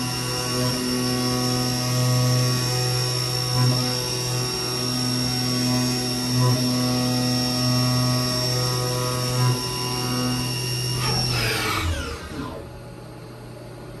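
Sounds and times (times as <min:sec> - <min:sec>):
low machine hum: 0:00.0 - 0:14.0
milling spindle whining: 0:07.2 - 0:12.7.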